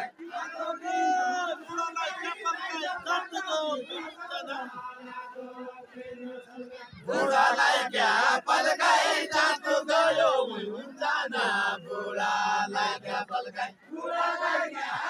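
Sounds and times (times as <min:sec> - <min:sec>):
men singing folk song: 0:04.0 - 0:15.0.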